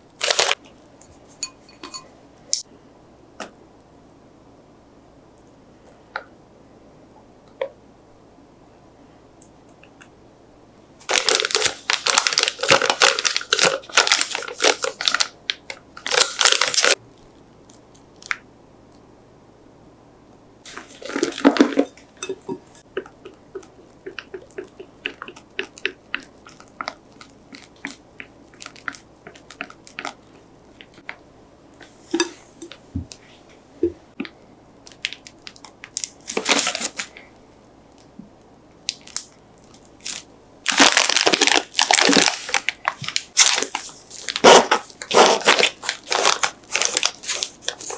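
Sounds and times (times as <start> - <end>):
plastic bag crinkling: 0.1 - 0.6, 11.0 - 18.4, 20.7 - 31.2, 34.8 - 37.2, 38.8 - 47.9.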